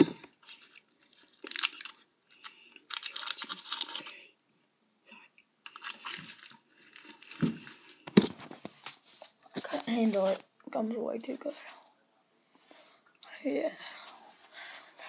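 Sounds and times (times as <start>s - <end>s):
person chewing crunchy food: 0.0s - 4.2s, 5.6s - 7.9s.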